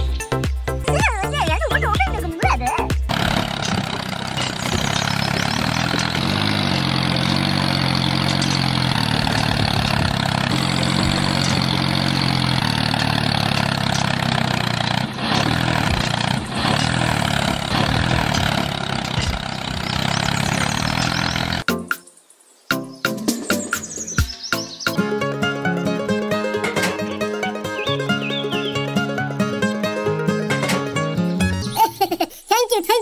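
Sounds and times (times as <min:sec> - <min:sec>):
tractor engine running: 0:00.0 - 0:21.7.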